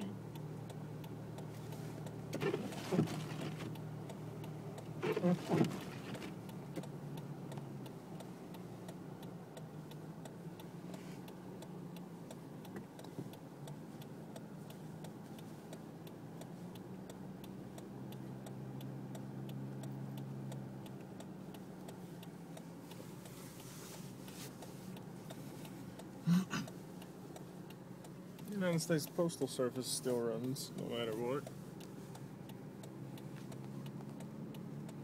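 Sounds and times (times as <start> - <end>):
low cabin hum: 0.0 - 15.7
car turn signal ticking: 0.0 - 35.0.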